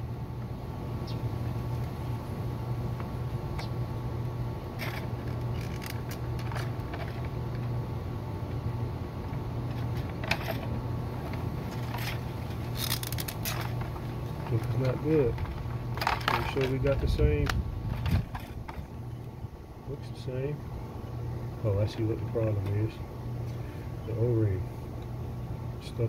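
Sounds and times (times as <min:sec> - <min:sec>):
steady low hum: 0:00.0 - 0:26.0
plastic parts clicking and rattling: 0:04.8 - 0:07.6, 0:11.3 - 0:18.9.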